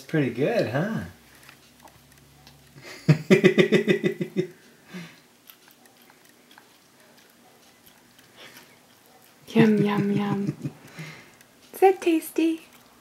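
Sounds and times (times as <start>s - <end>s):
baby gnawing and sucking: 0.6s - 2.8s, 4.5s - 9.6s, 12.6s - 13.0s
wet chewing clicks: 1.3s - 2.8s, 4.5s - 9.6s, 12.6s - 13.0s.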